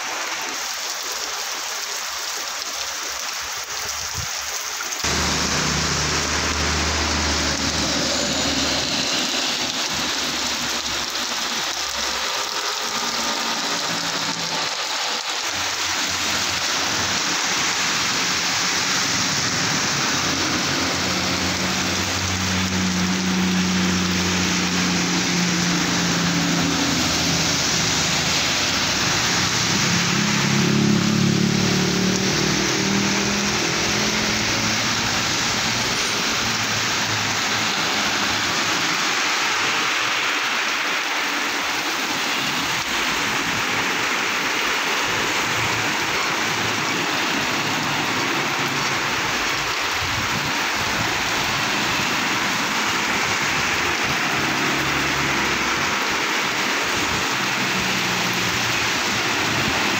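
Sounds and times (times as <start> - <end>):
heavy rain on wet road: 0.0 - 59.9
truck engine passing: 5.0 - 17.8, 18.5 - 40.8
vehicle passing: 5.0 - 49.6, 50.8 - 59.9.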